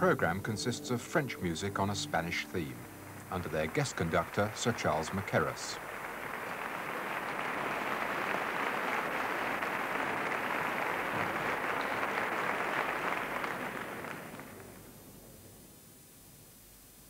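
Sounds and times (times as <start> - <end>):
audience applauding: 1.8 - 15.0.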